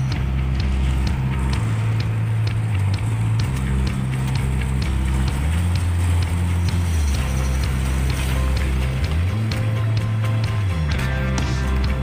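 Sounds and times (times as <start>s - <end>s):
deep bass notes: 0.0s - 12.0s
light ticking beat: 0.0s - 12.0s.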